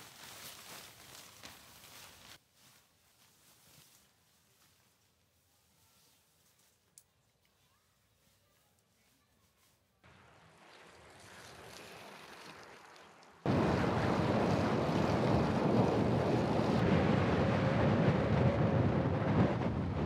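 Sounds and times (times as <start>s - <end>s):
wind buffeting microphone: 13.5s - 20.0s.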